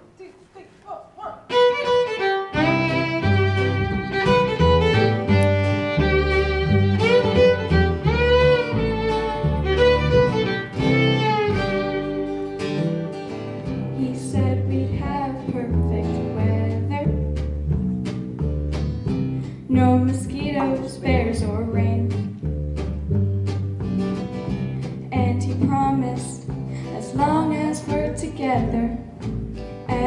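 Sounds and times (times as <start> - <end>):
fiddle melody: 1.5 - 17.2
strummed acoustic guitar: 1.5 - 30.0
upright bass: 1.5 - 30.0.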